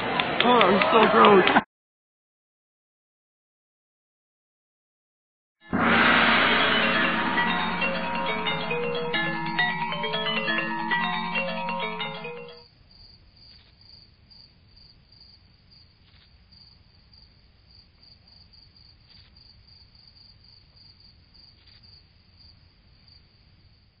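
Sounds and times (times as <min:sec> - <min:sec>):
crickets chirping: 0:12.6 - 0:24.0.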